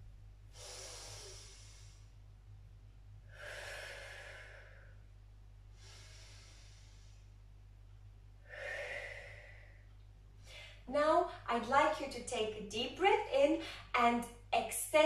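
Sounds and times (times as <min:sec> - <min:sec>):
woman breathing deeply: 0:00.5 - 0:02.4, 0:03.2 - 0:07.7, 0:08.3 - 0:11.4.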